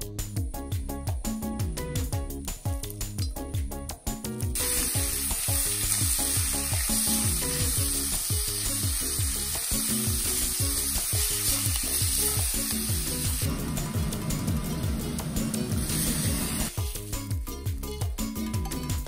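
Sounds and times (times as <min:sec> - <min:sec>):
beef sizzling in a wok: 0:04.5 - 0:18.3.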